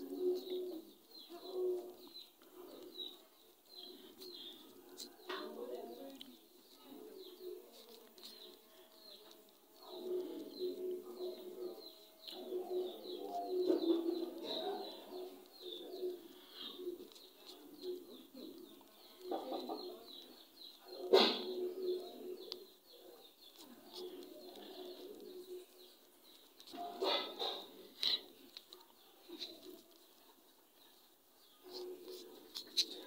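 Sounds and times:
low cooing: 0.0 - 3.1, 9.9 - 20.0, 21.0 - 22.8
birds chirping: 0.0 - 33.0.

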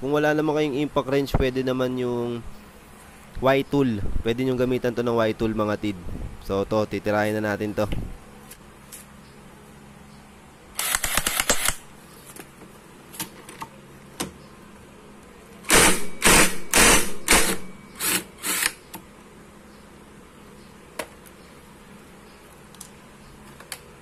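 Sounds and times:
impact wrench hammering: 15.7 - 18.6.

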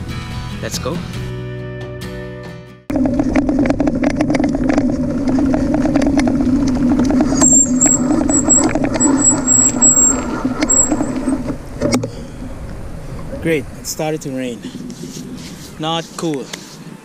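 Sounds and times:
bicycle rolling on rough asphalt: 2.9 - 16.8
thin high squeal: 7.3 - 11.4.

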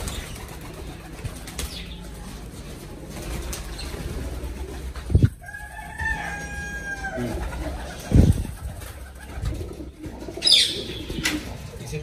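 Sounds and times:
rooster crowing: 5.4 - 7.5.

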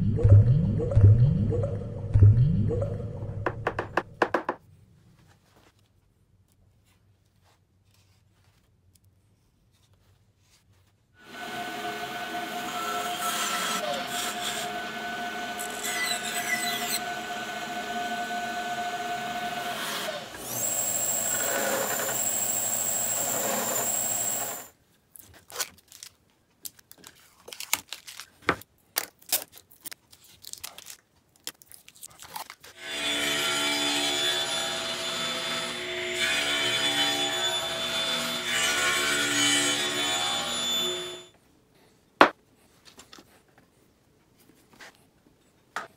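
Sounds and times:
bandsaw cutting wood: 11.2 - 24.7, 32.8 - 41.3
table saw cutting: 11.2 - 24.7, 32.8 - 41.3
machine high whine: 20.4 - 24.7, 40.1 - 41.3.

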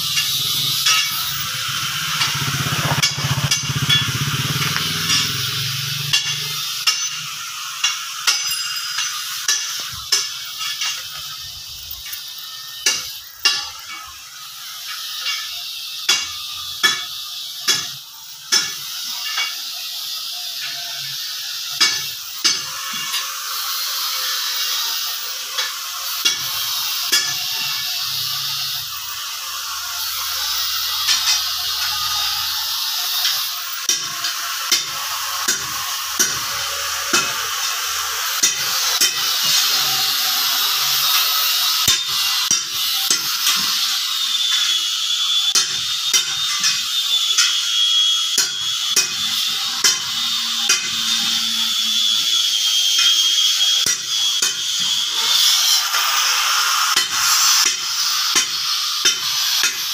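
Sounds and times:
sizzling hiss of workshop noise: 0.0 - 59.9.

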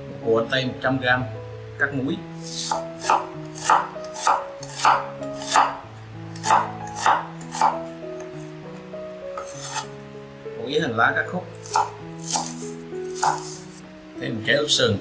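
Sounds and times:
soft background music: 0.0 - 15.0
knife slicing onion on wooden board: 2.4 - 8.8, 9.4 - 10.0, 11.6 - 13.8.

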